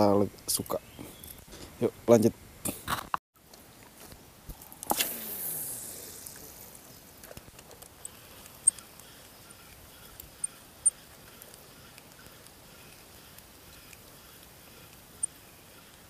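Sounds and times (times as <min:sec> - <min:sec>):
fishing line hissing off reel: 0:04.8 - 0:06.9
faint reel clicks: 0:07.2 - 0:16.0
sharp high ticks: 0:08.0 - 0:16.0.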